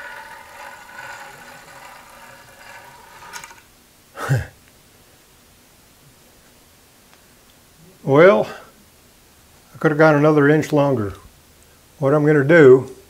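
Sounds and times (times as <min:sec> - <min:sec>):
faint steady whirring: 0:00.0 - 0:13.0.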